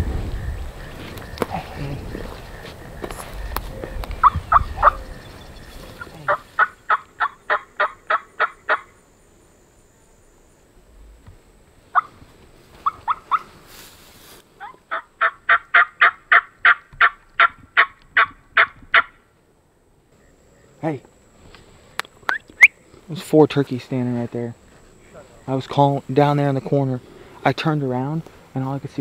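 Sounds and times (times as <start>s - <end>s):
turkey yelping: 4.2s - 8.9s, 11.9s - 12.1s, 12.8s - 13.5s, 14.6s - 19.2s.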